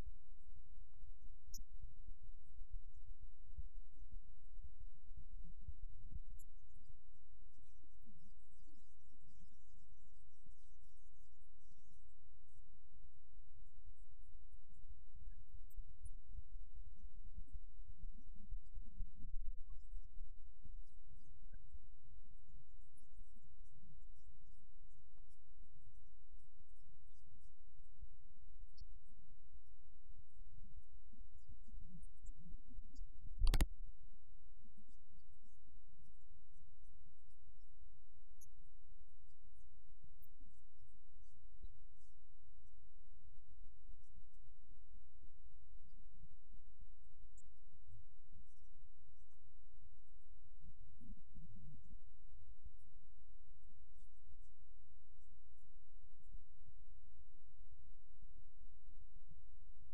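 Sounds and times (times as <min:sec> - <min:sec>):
low rumble and rubbing of camera: 0:30.2 - 0:33.7.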